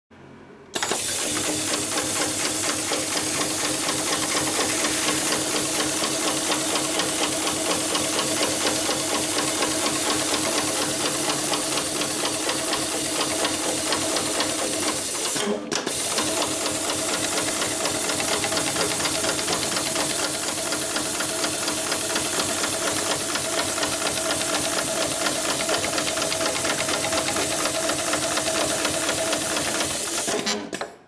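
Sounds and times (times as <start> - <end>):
sewing machine needle clatter: 0.8 - 31.0.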